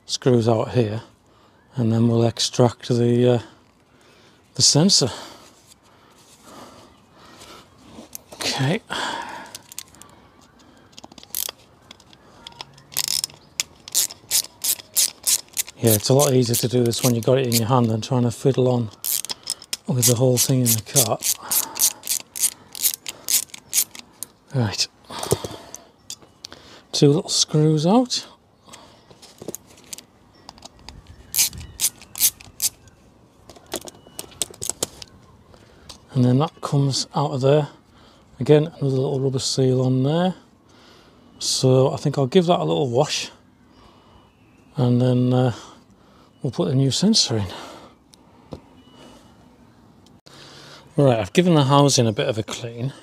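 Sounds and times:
plastic parts clicking and knocking: 9.5s - 17.7s, 18.5s - 24.4s, 29.4s - 32.8s, 33.5s - 35.1s
ratcheting screwdriver clicking: 10.9s - 17.7s, 19.0s - 24.3s, 29.8s - 32.8s.

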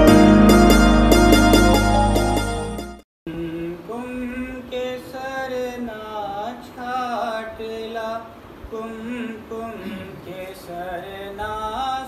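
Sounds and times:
sustained musical accompaniment: 0.0s - 3.0s
person singing slow melody: 3.3s - 4.6s.

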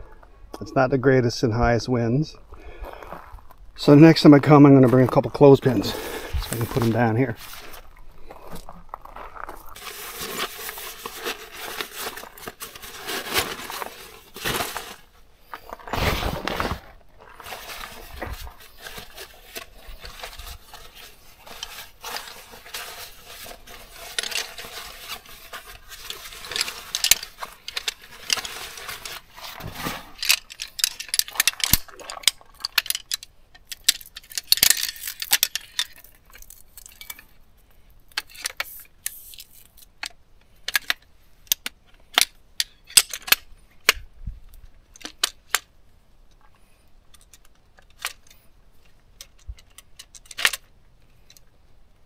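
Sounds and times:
nylon sack rustling: 9.1s - 30.5s
metal poles clinking: 18.8s - 37.4s.

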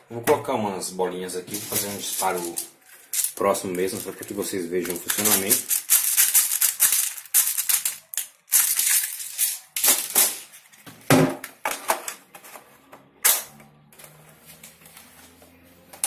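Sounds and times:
plastic bbs rattling: 1.5s - 10.5s.

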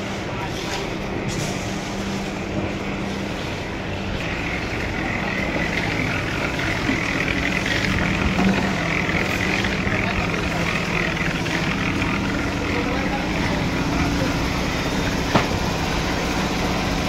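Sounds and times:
engine drone: 0.0s - 17.0s.

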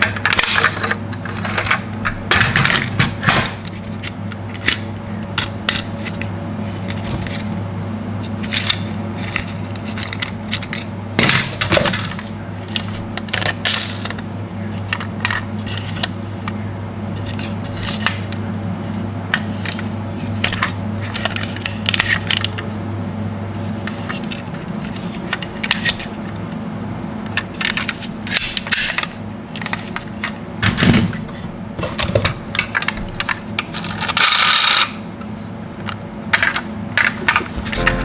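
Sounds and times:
steady low hum: 0.0s - 21.5s, 37.1s - 38.0s
toy cars clicking and clacking: 32.6s - 35.0s.

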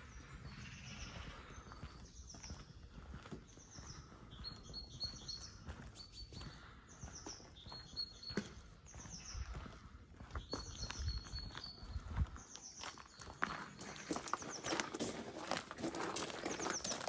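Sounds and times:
soft footsteps: 12.1s - 17.0s.

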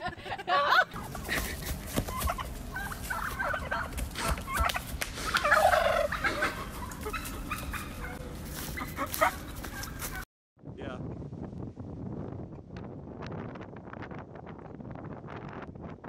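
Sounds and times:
turkey gobbling: 2.0s - 10.2s.

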